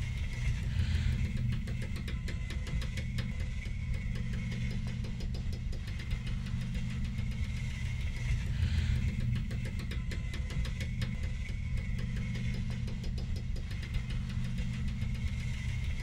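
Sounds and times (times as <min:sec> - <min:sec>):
low mechanical rumble: 0:00.0 - 0:16.0
fast rattle of clicks: 0:01.3 - 0:15.9.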